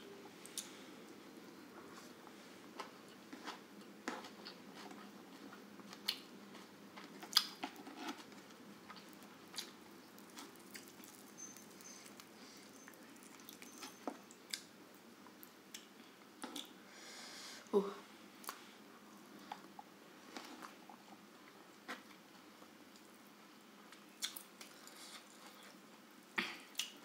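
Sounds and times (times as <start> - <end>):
chewing with wet smacks: 8.9 - 14.7.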